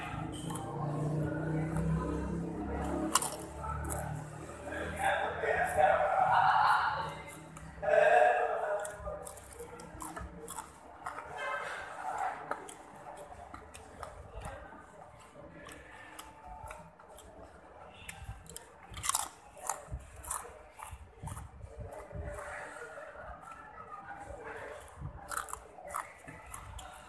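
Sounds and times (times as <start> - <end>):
chewing and mouth smacks: 0.0 - 4.6, 8.7 - 22.6, 24.8 - 27.0.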